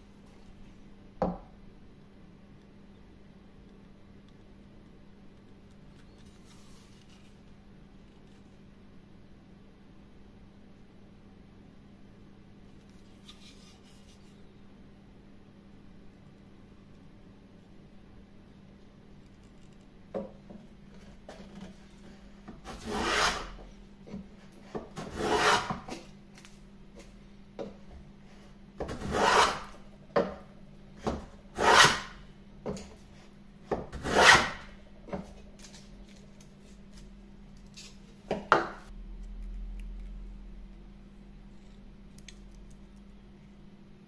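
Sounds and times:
hand plane swishing strokes: 0:22.7 - 0:23.6, 0:25.0 - 0:25.9, 0:29.0 - 0:29.7, 0:31.6 - 0:32.2, 0:34.0 - 0:34.6.

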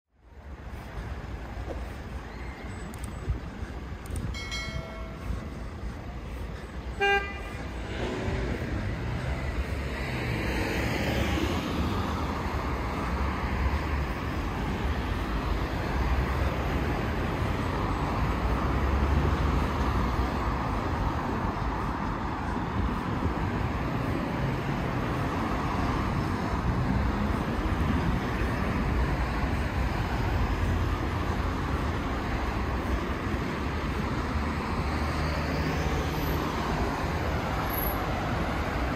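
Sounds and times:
traffic rumble: 0:00.1 - 0:38.9
car horn toot: 0:07.0 - 0:07.6.

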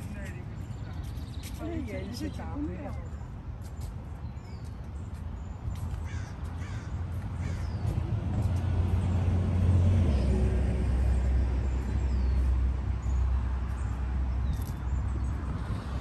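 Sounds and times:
vehicle engine rumble: 0:04.9 - 0:16.0.

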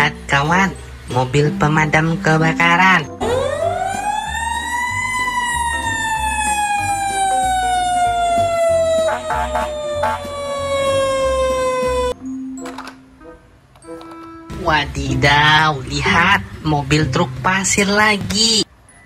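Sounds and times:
fire engine siren winding: 0:03.2 - 0:12.9.

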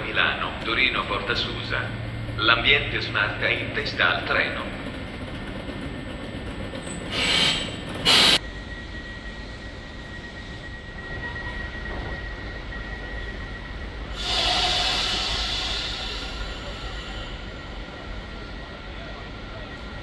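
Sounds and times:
low train rumble: 0:00.0 - 0:20.0
train air hiss: 0:07.1 - 0:08.4, 0:14.0 - 0:18.1
steady high tone: 0:08.4 - 0:20.0
rush of noise: 0:14.1 - 0:18.6.

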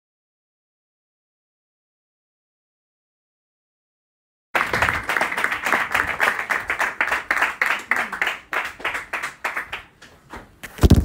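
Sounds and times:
audience clapping: 0:04.6 - 0:10.1.

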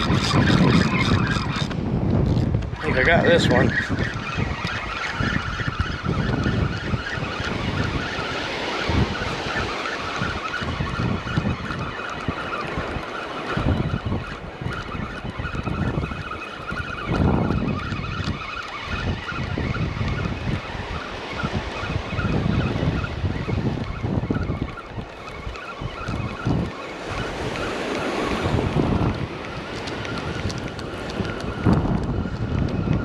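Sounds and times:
surf breaking on beach: 0:00.0 - 0:33.0
wind gusting on microphone: 0:00.0 - 0:33.0.

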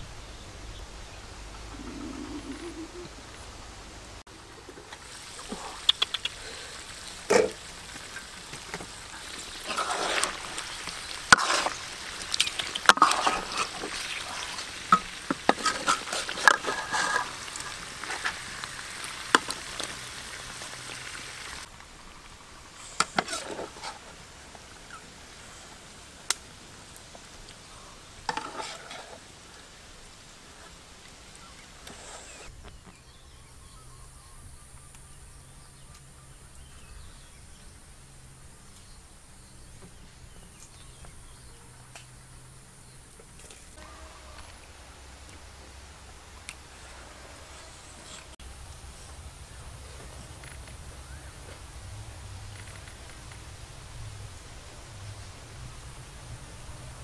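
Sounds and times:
meat sizzling in a pot: 0:04.8 - 0:22.0.

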